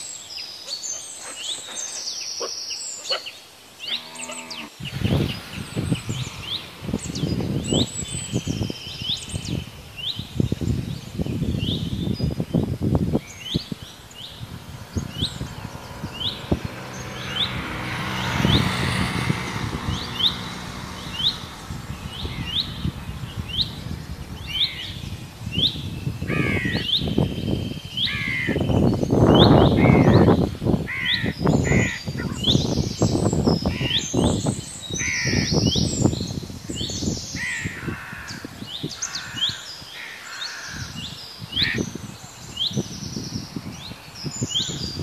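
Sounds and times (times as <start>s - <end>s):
wind gusts on microphone: 3.9s - 45.0s
crows cawing: 37.4s - 41.0s.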